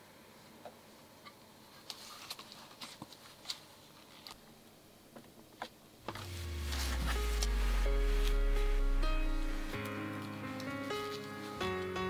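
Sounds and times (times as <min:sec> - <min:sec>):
background music: 0:06.1 - 0:12.0.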